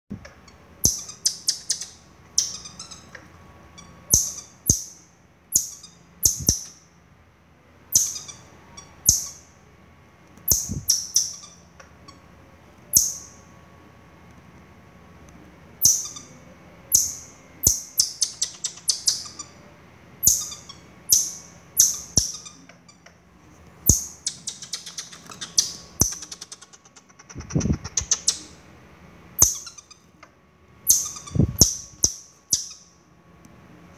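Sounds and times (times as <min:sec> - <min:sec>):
baby marmoset squeaky calls: 0:00.8 - 0:06.8, 0:07.9 - 0:09.5, 0:10.5 - 0:12.2, 0:12.9 - 0:13.4, 0:15.8 - 0:19.6, 0:20.2 - 0:23.0, 0:23.8 - 0:28.6, 0:29.4 - 0:30.1, 0:30.8 - 0:32.9.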